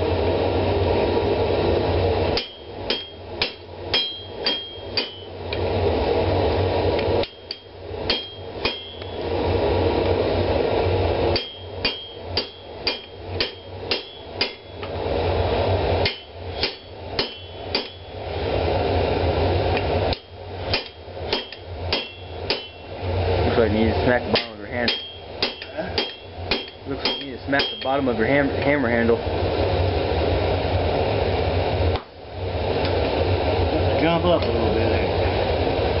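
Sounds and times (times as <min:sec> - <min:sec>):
steady rushing noise: 0:00.0 - 0:36.0
hammer striking steel on anvil: 0:02.3 - 0:05.4, 0:07.2 - 0:09.3, 0:11.3 - 0:15.0, 0:16.0 - 0:18.2, 0:20.1 - 0:23.0, 0:24.2 - 0:28.2.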